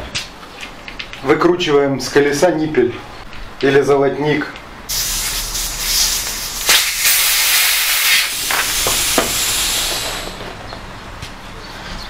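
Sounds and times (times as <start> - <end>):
air hissing from inner tube: 4.9 - 10.6.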